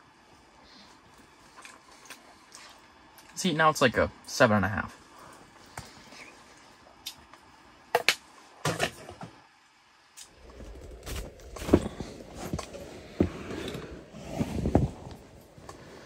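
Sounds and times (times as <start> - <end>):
rustling on inflatable floor: 10.4 - 16.0.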